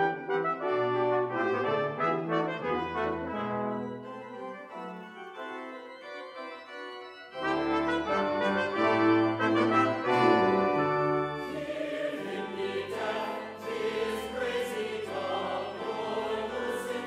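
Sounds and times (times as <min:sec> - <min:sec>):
low brass ensemble chords: 0:00.0 - 0:04.7, 0:07.3 - 0:12.9.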